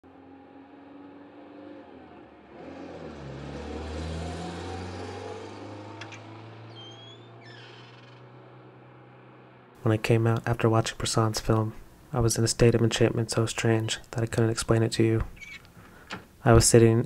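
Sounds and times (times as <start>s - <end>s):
car passing: 0.1s - 10.0s.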